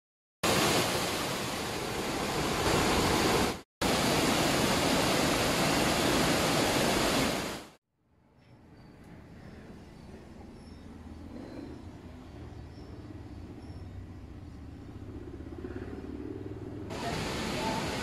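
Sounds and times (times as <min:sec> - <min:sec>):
waterfall rushing: 0:00.4 - 0:07.8, 0:16.9 - 0:18.0.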